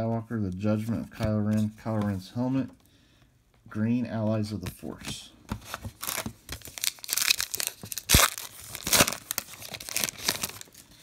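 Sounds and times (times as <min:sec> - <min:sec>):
foil wrapper crinkling and tearing: 0:06.0 - 0:11.0.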